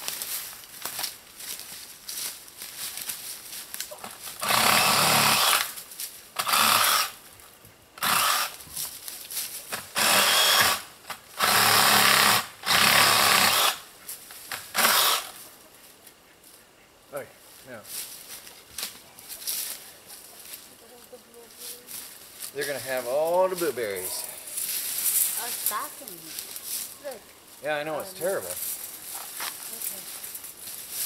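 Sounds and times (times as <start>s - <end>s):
handheld power tool bursts: 4.4s - 5.8s, 8.0s - 8.6s, 9.9s - 10.8s, 11.4s - 13.8s, 14.7s - 15.4s.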